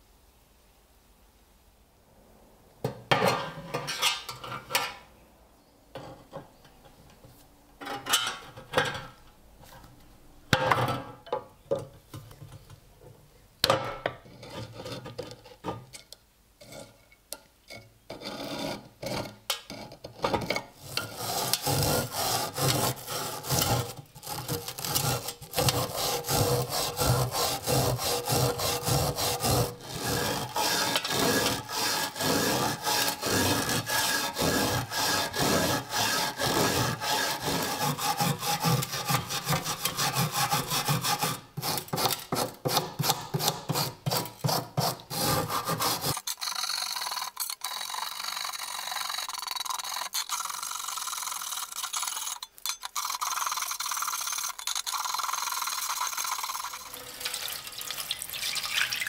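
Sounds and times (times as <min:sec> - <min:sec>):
steel scraper scraping rust: 0:03.1 - 0:05.0, 0:14.2 - 0:15.7, 0:17.7 - 0:57.0
wire brush scrubbing metal: 0:20.8 - 0:57.4.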